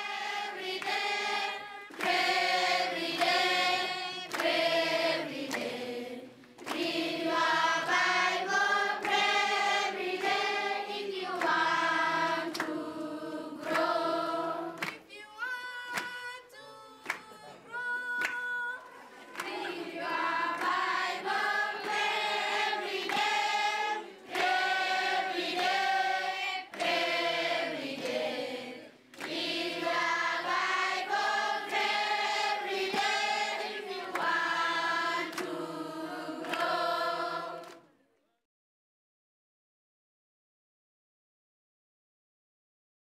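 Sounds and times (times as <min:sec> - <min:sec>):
choir singing: 0:00.0 - 0:14.9, 0:19.2 - 0:37.8.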